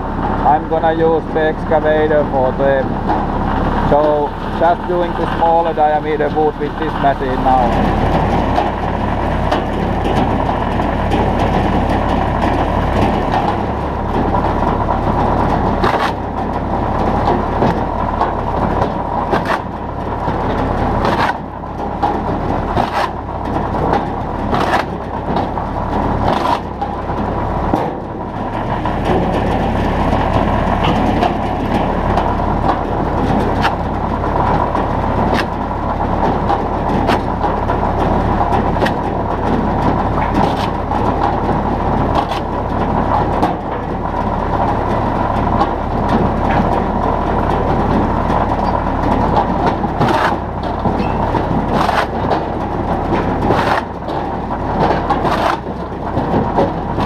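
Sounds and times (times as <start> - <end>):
tractor engine running: 0.0 - 57.0
blade splitting wood cracks: 15.8 - 28.1, 32.6 - 39.2, 39.8 - 41.4, 42.0 - 43.6, 49.4 - 57.0.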